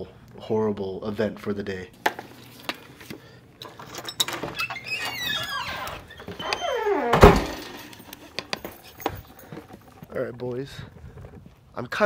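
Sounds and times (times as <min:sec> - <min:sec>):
door creaking on hinges: 0:03.6 - 0:10.0
door shutting thunk: 0:06.6 - 0:07.8.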